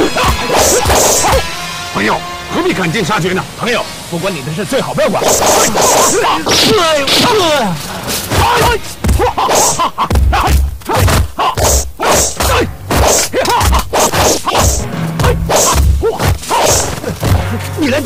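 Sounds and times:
punch and kick impacts: 0:00.0 - 0:01.5, 0:08.3 - 0:17.6
swishing whooshes: 0:05.2 - 0:06.2
background music: 0:11.4 - 0:18.0.

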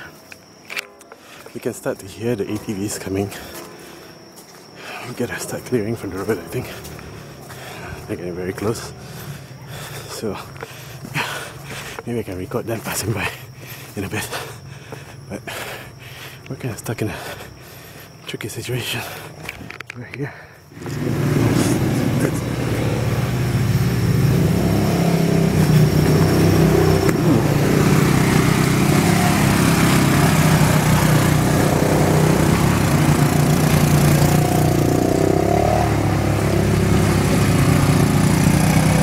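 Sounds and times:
quad bike engines passing: 0:05.4 - 0:10.0, 0:20.8 - 0:39.0.

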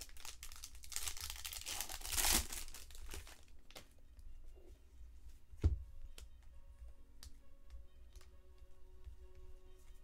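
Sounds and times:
wrapper crinkling and tearing: 0:00.0 - 0:03.8.

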